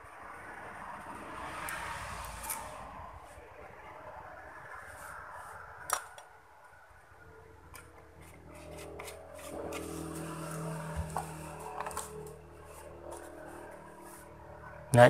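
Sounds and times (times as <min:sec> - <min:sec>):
low steady hum: 0:06.0 - 0:15.0.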